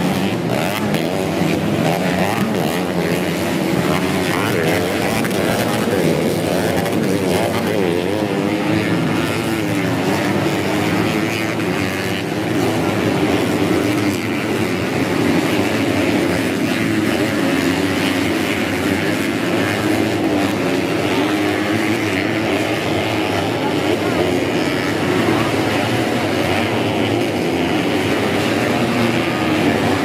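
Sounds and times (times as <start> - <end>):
motorcycle engines revving: 0.0 - 30.0.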